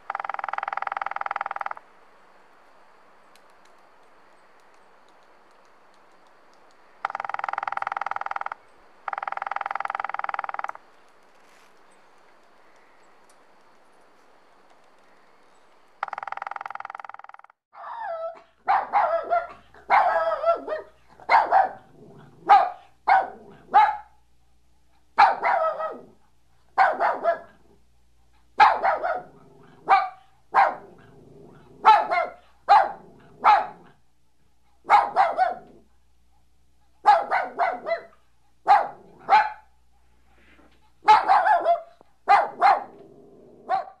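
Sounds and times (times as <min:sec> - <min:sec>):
dog barking: 0:17.8 - 0:24.2, 0:25.2 - 0:27.7, 0:28.6 - 0:34.0, 0:34.8 - 0:35.9, 0:36.9 - 0:39.8, 0:40.5 - 0:44.0.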